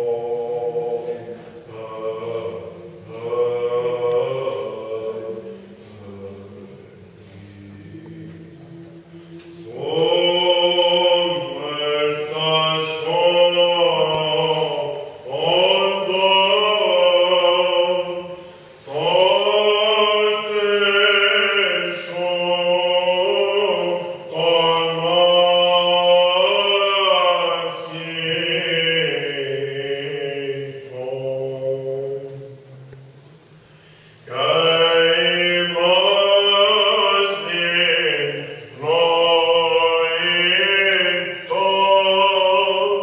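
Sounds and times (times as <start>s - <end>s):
person chanting ornamented melody: 0.0s - 33.2s, 34.3s - 43.0s.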